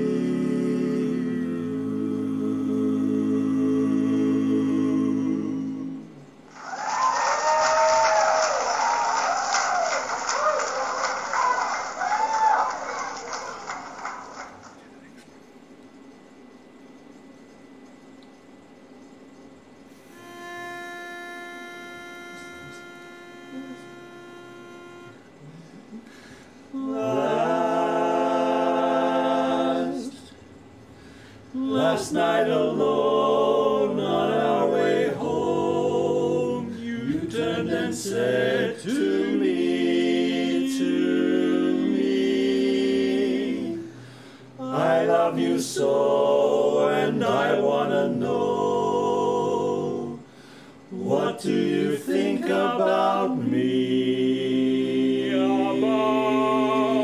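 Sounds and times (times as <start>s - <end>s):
male quartet singing a cappella: 0.0s - 6.4s, 20.1s - 30.5s, 31.1s - 57.0s.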